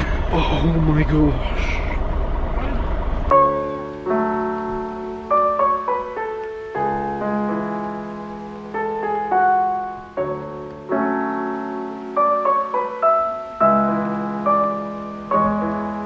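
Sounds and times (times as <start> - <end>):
slow solo piano: 3.3 - 16.0.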